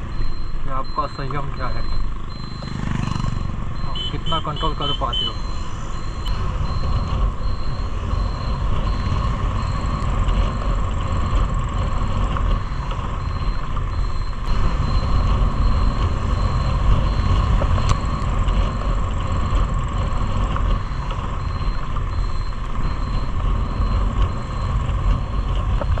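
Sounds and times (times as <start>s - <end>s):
motorcycle engine: 0.0s - 26.0s
faint high beep: 0.2s - 11.3s.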